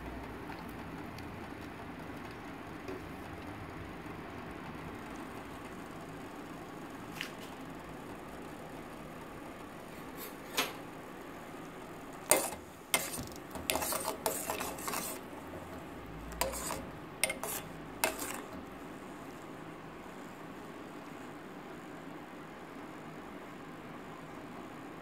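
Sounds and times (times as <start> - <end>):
spoon stirring in a pot: 12.2 - 18.8.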